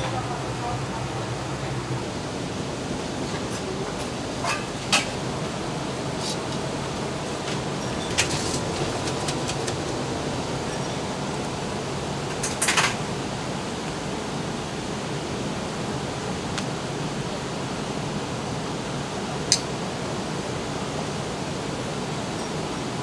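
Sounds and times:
ventilation rushing: 0.0 - 22.3.

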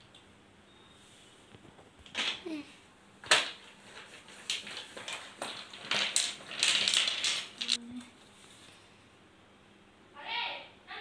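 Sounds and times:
plastic bottles clicking on hard floor: 3.2 - 7.8.

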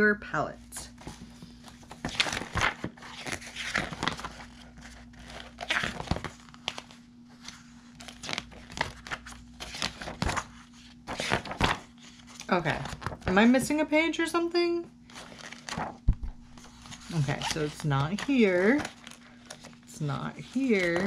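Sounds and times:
booklet pages turning: 0.9 - 13.4, 15.0 - 21.0.

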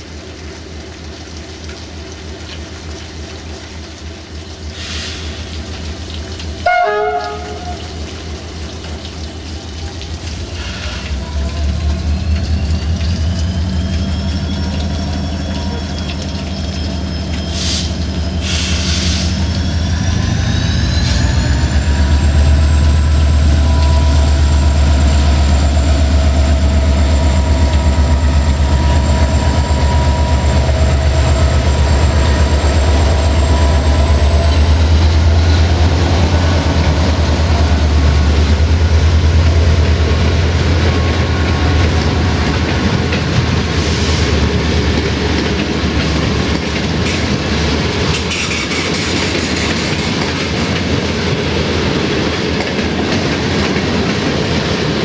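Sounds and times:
diesel locomotive engine with whine: 0.0 - 55.0
train wheels clacking over rail joints: 37.7 - 55.0.

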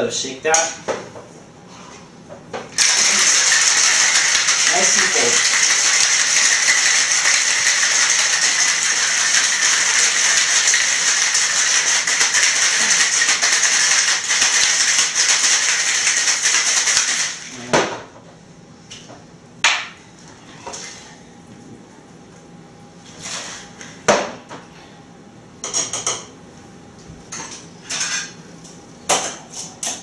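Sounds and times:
ice rattling in cocktail shaker: 2.8 - 17.5.

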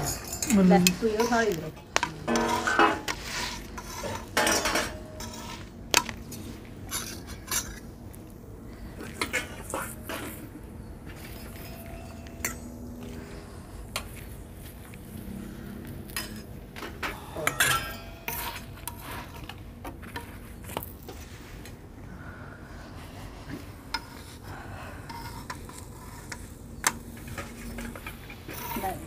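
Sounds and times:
steel dishes clinking: 0.0 - 7.9, 9.0 - 14.2, 16.0 - 20.3
metal spatula scraping griddle: 0.0 - 8.0, 8.7 - 21.4, 23.4 - 29.0.

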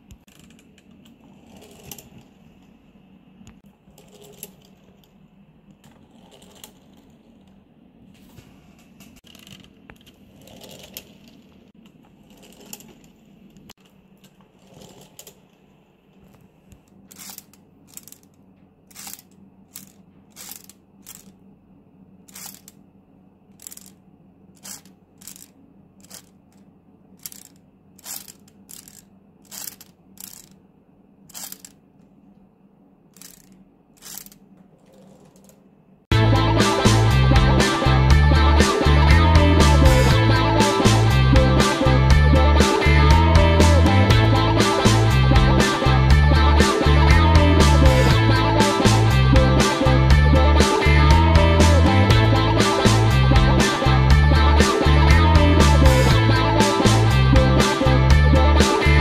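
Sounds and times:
plastic pieces rubbing and knocking: 17.1 - 21.4, 22.3 - 22.8, 23.6 - 24.0, 24.6 - 30.6, 31.3 - 31.8, 33.2 - 35.6
sharp mechanism clicks: 17.1 - 21.4, 22.3 - 22.8, 23.6 - 24.0, 24.6 - 26.6, 27.2 - 30.6, 31.3 - 31.8, 33.1 - 35.6.

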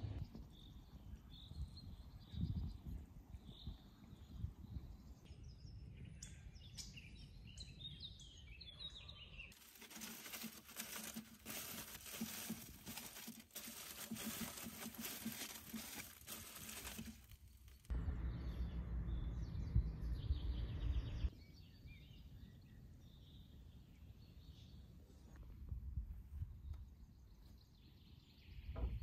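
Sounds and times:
small birds chirping: 0.1 - 25.6
aluminium foil crinkling: 9.5 - 17.9.

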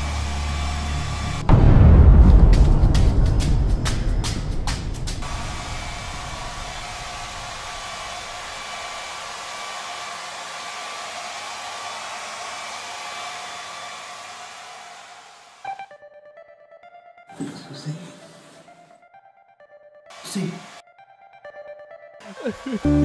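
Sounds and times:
steady rushing hiss: 2.7 - 13.4.

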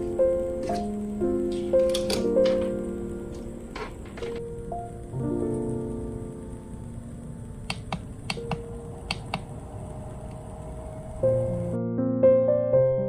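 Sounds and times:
gentle background music: 0.0 - 13.0
humidifier button clicks: 7.7 - 9.4.

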